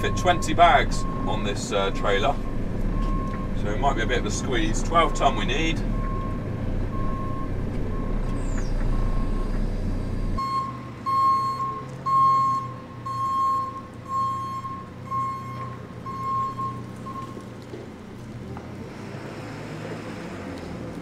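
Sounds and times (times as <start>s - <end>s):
diesel engine running: 0.0s - 21.0s
reversing alarm beeps: 5.9s - 9.5s, 10.4s - 17.4s.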